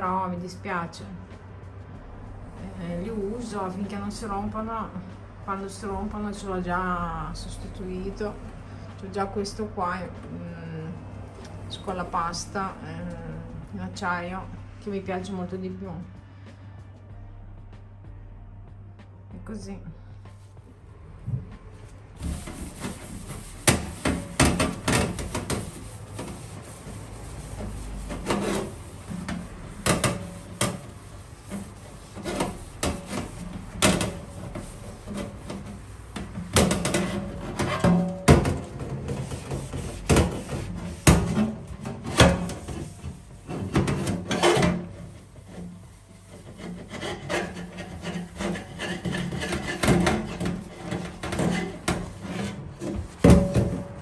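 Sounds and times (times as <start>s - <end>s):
sponge scrubbing a steel tray: 22.2s - 53.8s.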